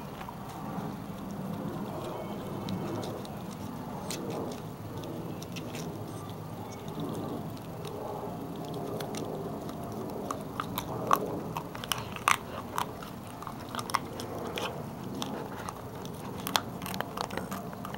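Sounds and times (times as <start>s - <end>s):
puppy gnawing a chew: 0.0s - 17.9s
sharp crunches and cracks: 0.0s - 17.9s.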